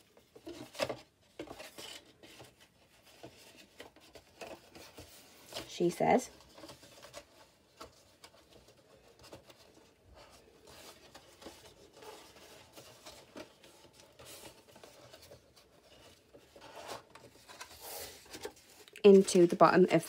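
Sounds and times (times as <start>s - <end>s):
card rustling on tabletop: 0.0s - 20.0s.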